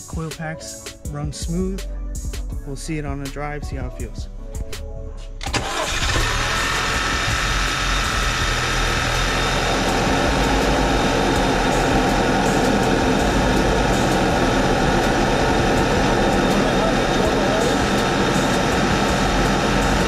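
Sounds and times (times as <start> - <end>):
car engine idling: 5.5 - 20.0.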